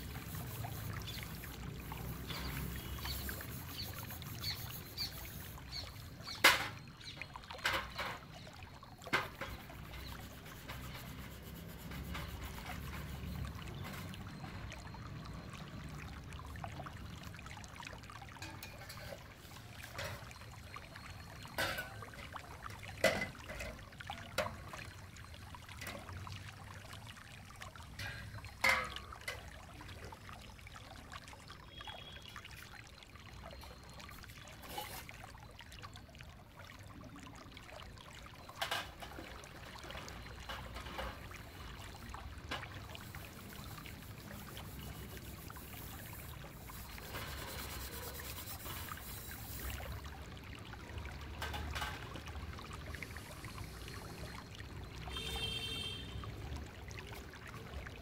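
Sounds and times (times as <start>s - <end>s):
steel wool scrubbing a bowl: 0.0s - 6.1s, 9.3s - 13.6s, 43.0s - 50.0s
water trickling and sloshing: 0.0s - 58.0s
steel bowls clinking: 18.4s - 20.4s, 21.4s - 22.3s.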